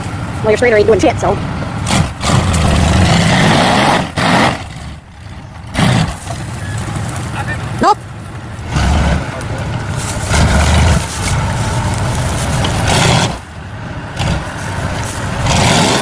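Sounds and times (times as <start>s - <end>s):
engine revving hard: 1.8s - 5.0s, 5.6s - 6.4s, 8.6s - 13.5s, 14.1s - 16.0s
tyres spinning in dirt: 1.8s - 16.0s.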